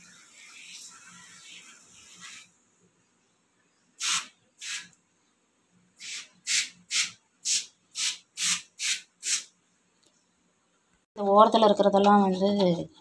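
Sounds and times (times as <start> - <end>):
aerosol spray bursts: 4.0 - 5.0, 6.0 - 9.5.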